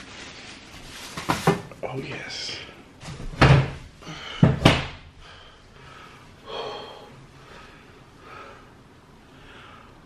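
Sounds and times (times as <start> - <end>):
man breathing softly: 5.2 - 10.0.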